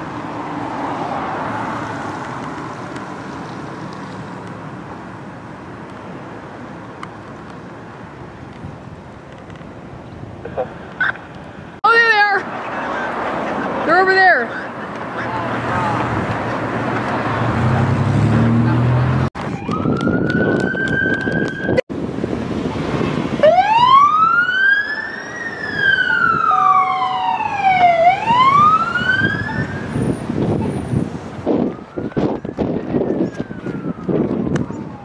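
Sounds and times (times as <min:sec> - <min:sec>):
vehicle engine and traffic: 0:00.0 - 0:35.0
police siren wailing: 0:19.4 - 0:21.8, 0:23.4 - 0:35.0.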